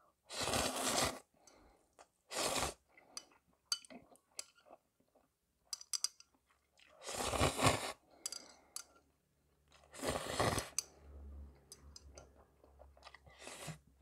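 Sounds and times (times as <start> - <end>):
soft chewing: 6.2 - 7.1, 11.6 - 14.0.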